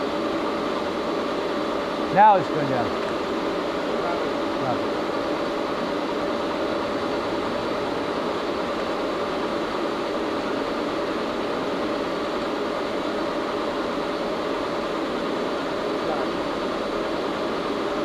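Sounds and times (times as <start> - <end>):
lathe mechanical hum and whine: 0.0 - 18.0.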